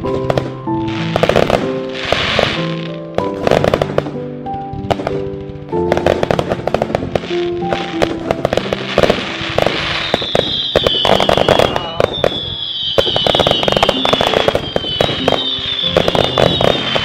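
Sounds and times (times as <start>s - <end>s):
background music: 0.0s - 17.0s
fireworks crackling and popping: 0.0s - 17.0s
falling firework whistle: 7.6s - 17.0s.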